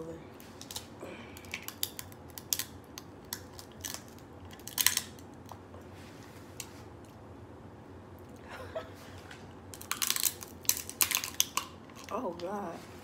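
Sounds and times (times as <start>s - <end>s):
shrimp shells crunching: 0.6s - 5.2s, 9.7s - 12.2s.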